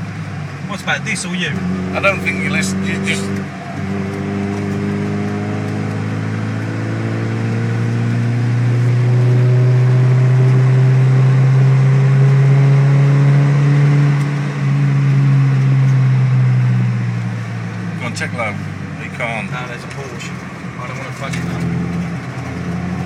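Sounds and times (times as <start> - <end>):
car engine pulling hard: 0.0 - 23.0.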